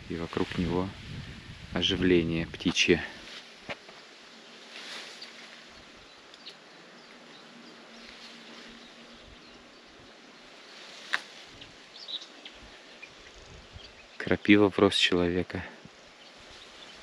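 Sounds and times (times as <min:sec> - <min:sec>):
faint bird chirps: 0:04.9 - 0:14.7.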